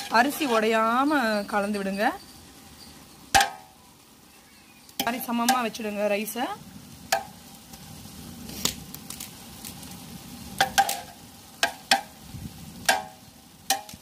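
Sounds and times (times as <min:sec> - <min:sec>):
ladle scraping rice in pot: 0:00.0 - 0:00.9
simmering pot hiss: 0:00.0 - 0:14.0.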